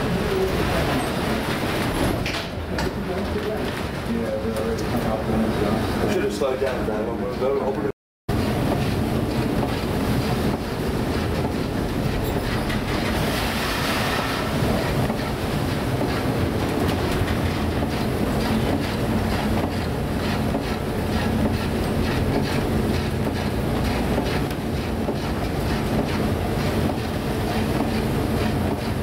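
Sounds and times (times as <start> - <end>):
boat engine and hull rumble: 0.0 - 29.0
heavy seas washing: 8.3 - 29.0.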